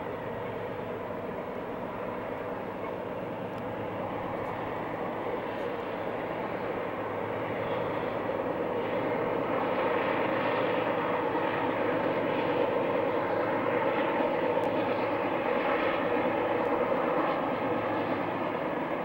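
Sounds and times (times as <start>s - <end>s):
diesel locomotives droning: 0.0s - 19.0s.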